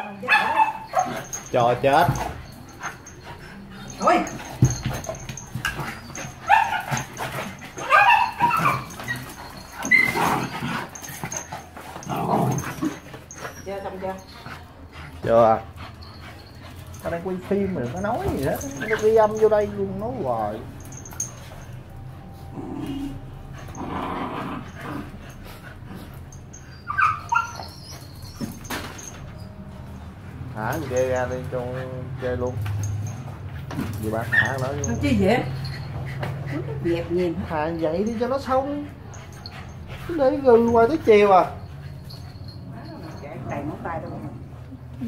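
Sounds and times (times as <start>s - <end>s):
dog barks: 0.0s - 1.4s, 6.4s - 7.2s, 7.8s - 9.0s
dog yelping and whining: 0.0s - 21.8s, 22.5s - 29.6s, 30.4s - 45.0s
dogs scuffling: 0.0s - 45.0s
dog growling: 5.8s - 13.4s, 22.4s - 26.3s.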